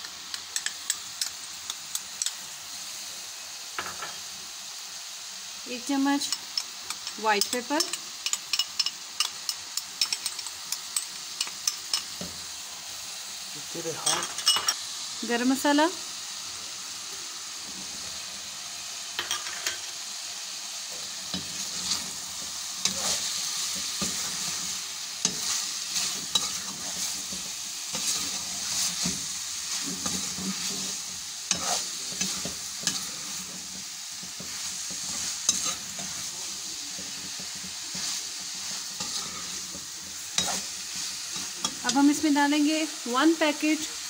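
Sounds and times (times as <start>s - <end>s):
chicken sizzling in a pan: 0.0s - 44.0s
spatula scraping food in pan: 20.9s - 42.2s.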